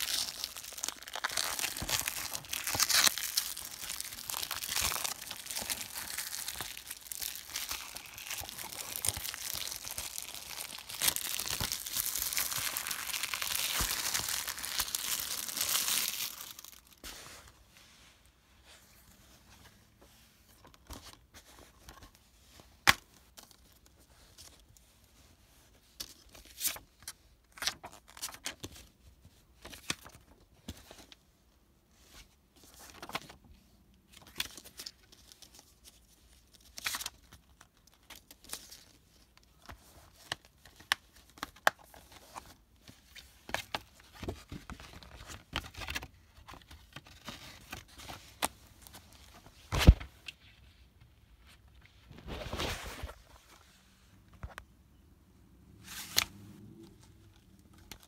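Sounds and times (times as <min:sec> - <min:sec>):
plastic wrap crinkling and tearing: 0:00.0 - 0:17.0.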